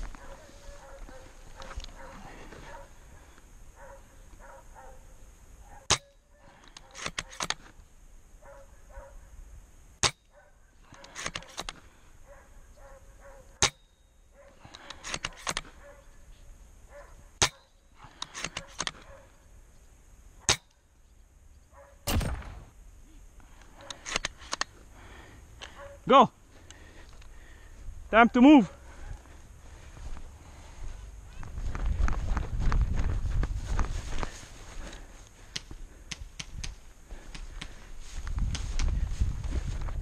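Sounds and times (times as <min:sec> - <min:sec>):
rifle bolt clicks: 0:05.9 - 0:07.7, 0:10.9 - 0:11.8, 0:14.7 - 0:15.7, 0:17.4 - 0:19.1
airsoft rifle shot snap: 0:22.1 - 0:22.7.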